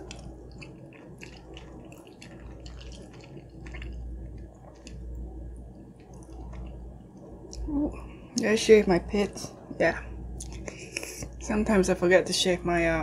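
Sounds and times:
fork squelching in macaroni: 0.0s - 5.3s, 6.0s - 6.8s
low steady hum: 0.0s - 13.0s.

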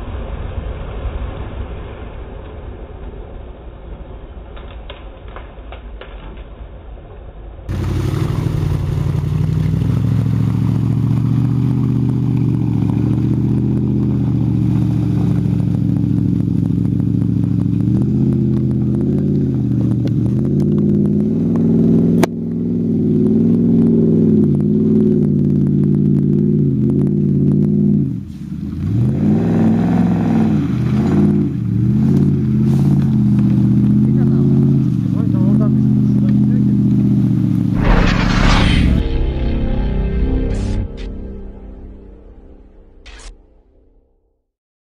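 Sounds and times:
off-road engine revving: 7.7s - 41.4s.

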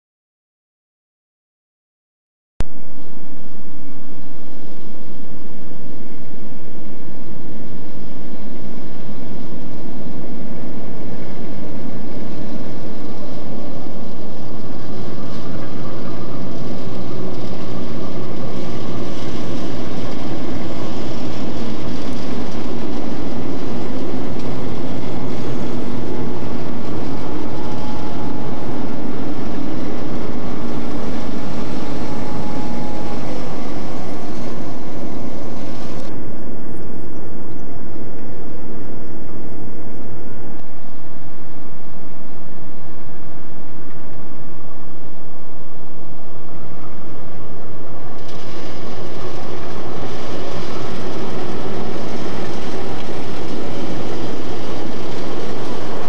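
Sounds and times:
rumble of train wheels: 2.7s - 56.0s
diesel locomotive engines droning: 3.3s - 56.0s
thin steady squeal: 8.6s - 40.5s.

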